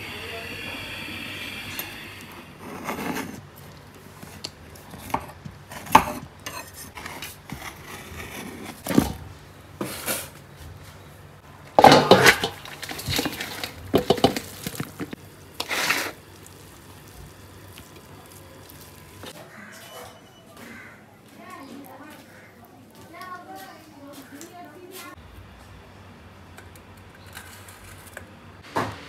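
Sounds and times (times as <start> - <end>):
spoon and lid clanking on steel pot: 11.8 - 15.1.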